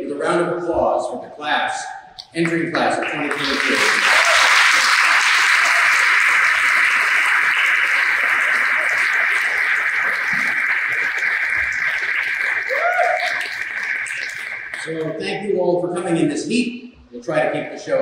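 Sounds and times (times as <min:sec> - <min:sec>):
audience applauding: 0:02.2 - 0:15.2.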